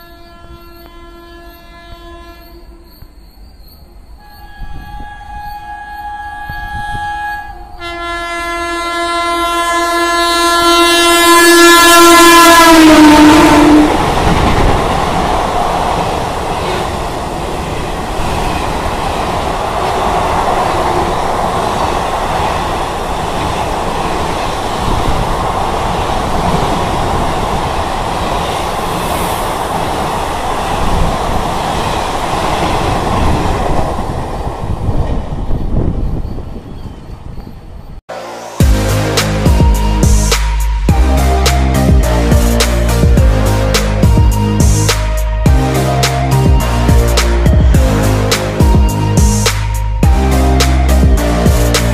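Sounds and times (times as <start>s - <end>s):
locomotive horn: 0.0s - 3.0s, 4.2s - 14.2s.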